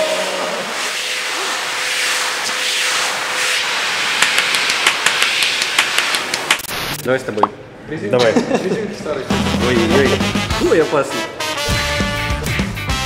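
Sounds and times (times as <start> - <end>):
pressure washer spraying water: 0.0 - 7.0
rapid regular clicks: 4.2 - 6.7.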